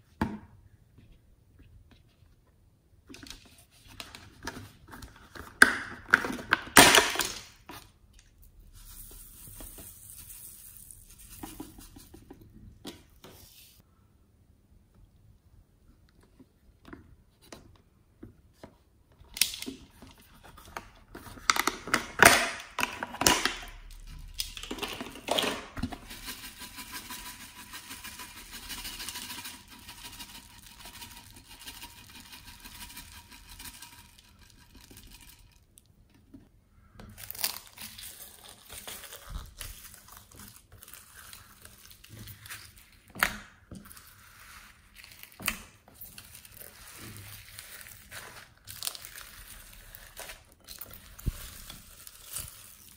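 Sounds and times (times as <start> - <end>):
beads pouring with rustling hiss: 8.6 - 11.4, 50.9 - 52.9
foam beads crackling: 46.1 - 52.9.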